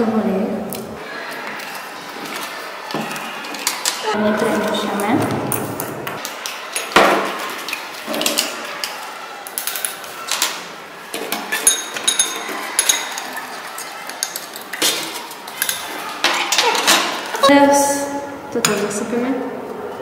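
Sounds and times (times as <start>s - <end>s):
metal clinking on glass: 11.5s - 13.5s.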